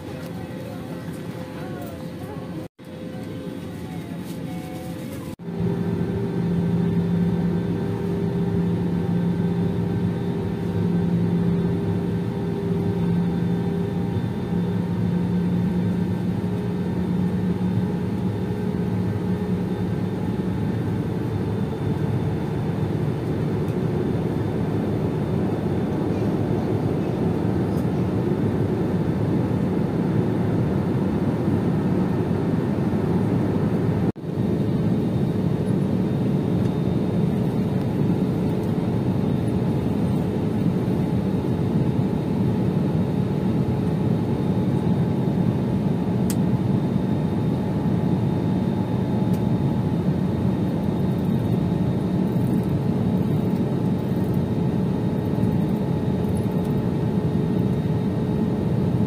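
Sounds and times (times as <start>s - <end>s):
low hum: 0.0s - 41.1s
airliner cabin engine and airflow rush: 0.0s - 59.0s.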